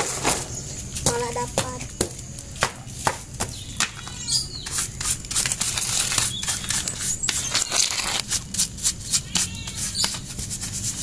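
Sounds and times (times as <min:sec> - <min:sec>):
stiff brush scrubbing: 0:04.5 - 0:11.0.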